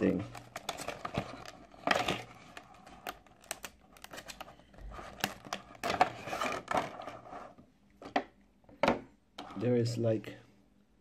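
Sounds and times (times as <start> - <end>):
plastic packaging crinkling: 0.2 - 7.2.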